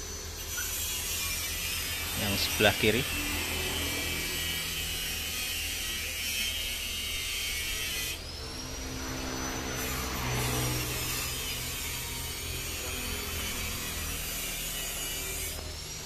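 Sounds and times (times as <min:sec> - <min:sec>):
motor humming: 0:00.0 - 0:16.0.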